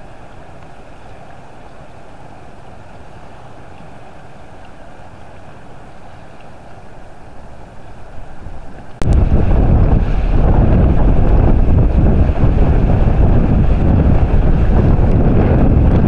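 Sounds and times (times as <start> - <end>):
waves breaking on shore: 0.0 - 16.0
wind buffeting microphone: 8.0 - 16.0.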